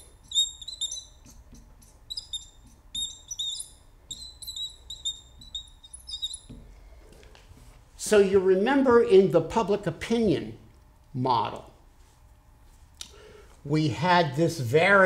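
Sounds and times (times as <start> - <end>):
marker pen squeaking on glass: 0.0 - 6.6.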